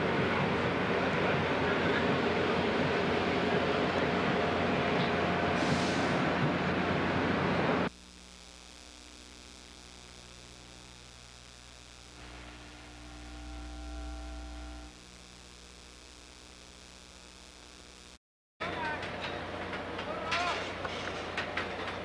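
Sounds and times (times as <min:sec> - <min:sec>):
electrical mains hum: 0:06.7 - 0:22.0.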